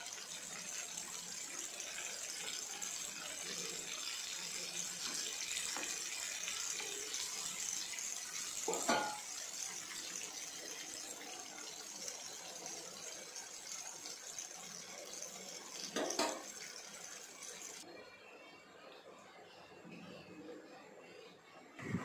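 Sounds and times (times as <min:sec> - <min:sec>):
oil sizzling deep-frying: 0:00.0 - 0:17.8
metal spoon clinking on pan: 0:08.7 - 0:09.4.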